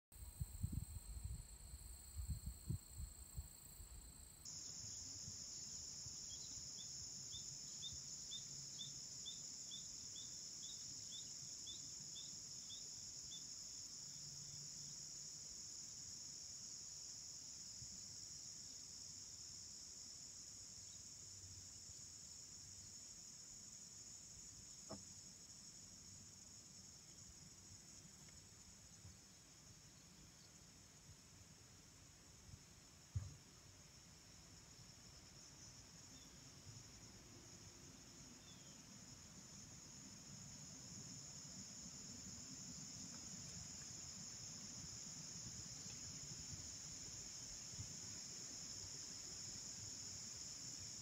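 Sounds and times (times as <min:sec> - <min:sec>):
crickets chorus: 0:00.2 - 0:51.0
faint click: 0:28.2 - 0:28.4.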